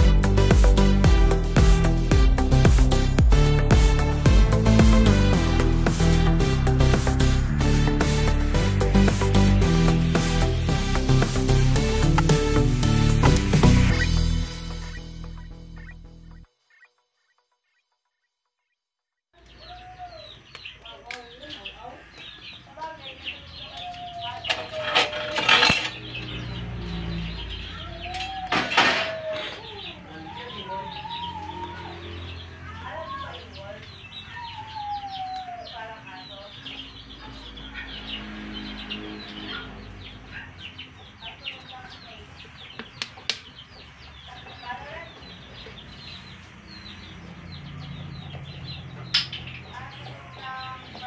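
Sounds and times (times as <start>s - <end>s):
chickens clucking: 13.2s - 16.4s, 19.4s - 51.0s
loud harsh chicken calls: 23.4s - 41.6s.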